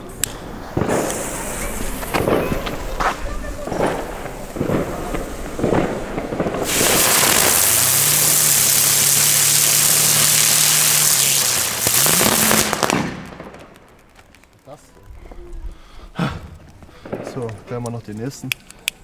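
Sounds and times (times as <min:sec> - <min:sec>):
firework spark hiss: 0:00.0 - 0:14.2
firework humming and whining: 0:00.0 - 0:15.0.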